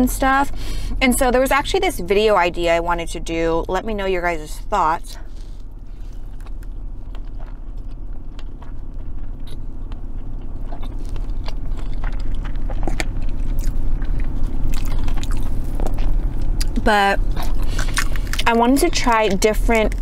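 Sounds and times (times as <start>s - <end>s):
steady low hum: 0.0s - 20.0s
slurping and chewing noodles: 5.2s - 20.0s
wet mouth clicks: 10.7s - 18.5s.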